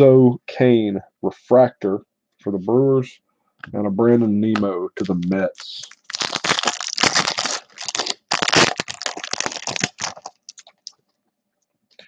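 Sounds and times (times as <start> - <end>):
foil wrapper tearing and crinkling: 5.0 - 10.9.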